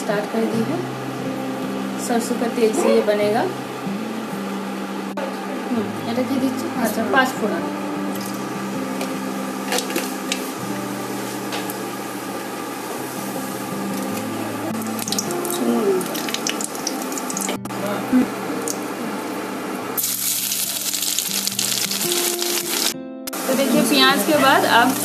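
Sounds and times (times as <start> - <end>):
hissing sizzle: 6.1 - 25.0
seeds crackling in hot oil: 12.8 - 17.6, 20.0 - 23.0.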